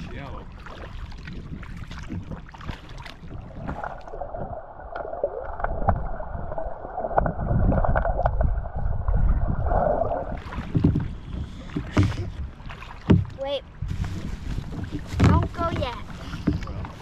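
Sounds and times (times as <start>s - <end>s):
muffled underwater churning: 0.0s - 17.0s
water splashing: 0.0s - 17.0s
low rumble: 3.1s - 17.0s.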